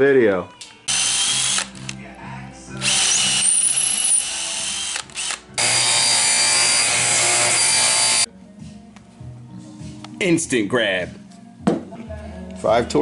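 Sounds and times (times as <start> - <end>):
cordless drill driving screws: 0.9 - 1.8, 2.8 - 8.3.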